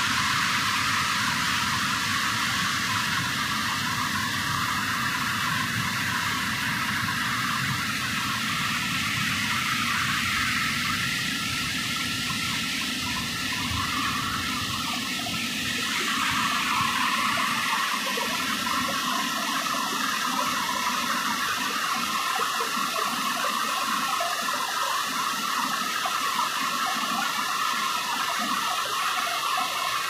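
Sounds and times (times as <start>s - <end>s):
waterfall and stream rushing: 12.2s - 30.0s.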